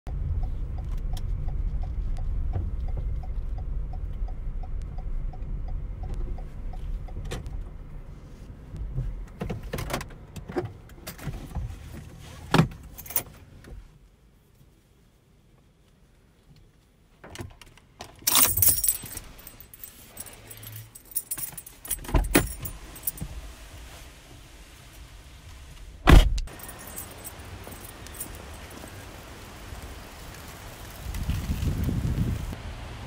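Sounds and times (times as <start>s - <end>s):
turn signal ticking: 0.1s - 8.1s
car engine rumble: 0.1s - 33.0s
clicks and rattles in car cabin: 7.1s - 7.7s, 8.8s - 13.8s, 17.2s - 23.4s.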